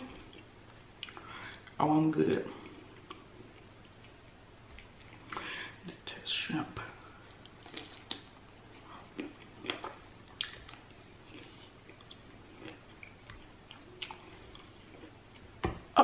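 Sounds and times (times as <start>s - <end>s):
person chewing food: 0.1s - 5.5s, 7.2s - 15.6s.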